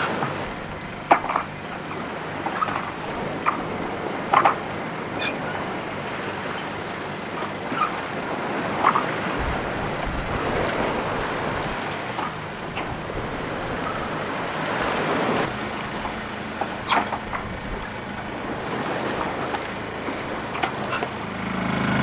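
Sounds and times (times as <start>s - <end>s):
wind and sea rushing past hull: 0.0s - 22.0s
rig knocks and creaks: 0.2s - 3.7s, 4.3s - 4.6s, 15.4s - 18.4s, 19.4s - 21.3s
generator whirring: 10.7s - 22.0s.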